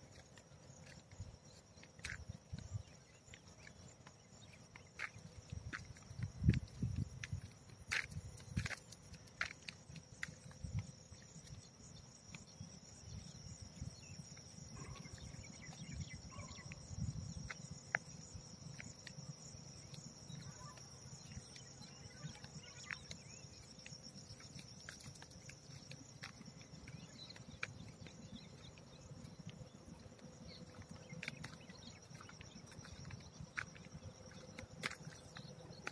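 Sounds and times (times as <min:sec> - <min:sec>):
faint footstep clicks: 0:00.0 - 0:13.3, 0:14.8 - 0:35.9
high-pitched insect drone: 0:00.0 - 0:35.9.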